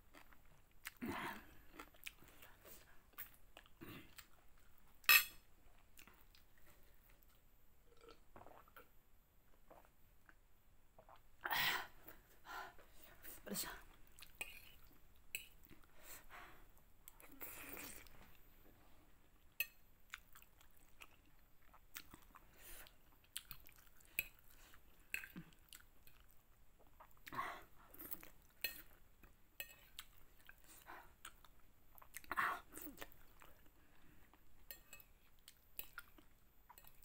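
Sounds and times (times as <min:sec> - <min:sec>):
chewing noodles: 0:20.1 - 0:29.0.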